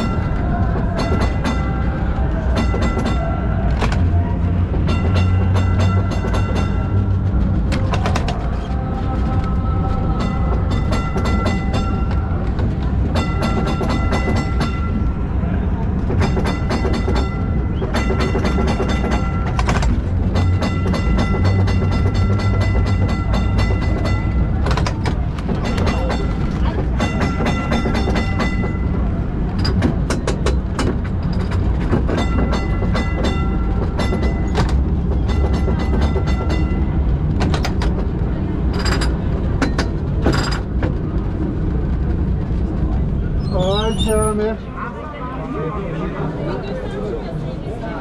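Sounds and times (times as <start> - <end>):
tram warning bell ringing: 0.0 - 3.8, 4.5 - 7.4, 10.0 - 15.4, 16.0 - 40.8
tram rumbling on rails: 0.0 - 48.0.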